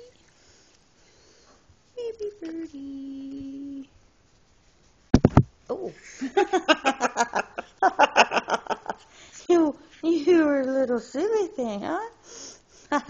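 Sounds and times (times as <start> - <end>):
person humming: 2.0 - 4.0
sharp thump: 5.1 - 5.5.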